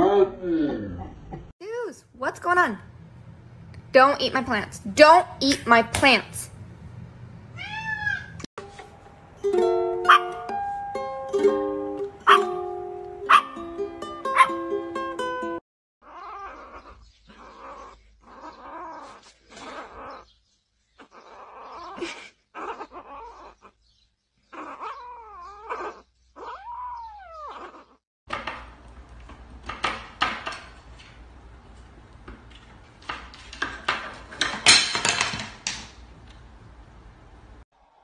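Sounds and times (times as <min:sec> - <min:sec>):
kitten meowing: 0:07.6 - 0:08.4.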